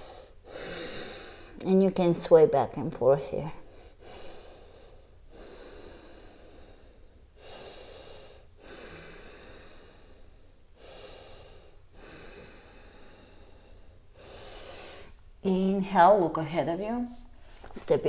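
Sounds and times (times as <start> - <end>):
woman breathing deeply: 0.0 - 1.6, 3.6 - 15.2.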